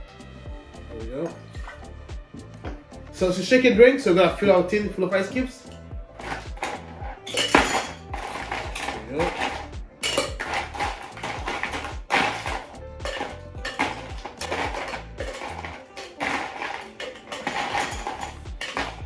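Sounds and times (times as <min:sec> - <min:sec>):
background music with steady beat: 0:00.0 - 0:19.0
ice and shaker tins clinking: 0:05.6 - 0:19.0.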